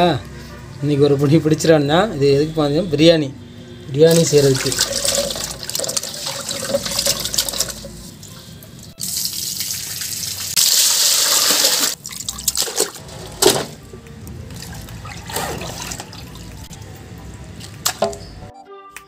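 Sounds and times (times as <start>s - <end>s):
water pouring onto the ground: 4.1s - 8.4s, 9.0s - 12.9s
water sloshing in a pot: 4.1s - 13.7s, 14.4s - 18.2s.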